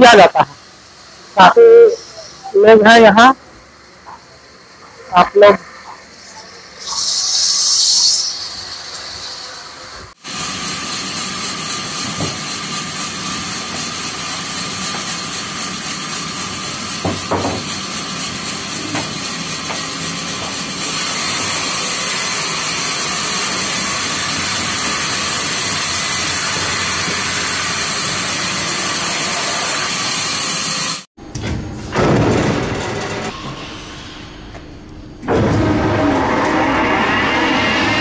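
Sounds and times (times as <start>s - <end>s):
knocks: 17.0s - 17.7s.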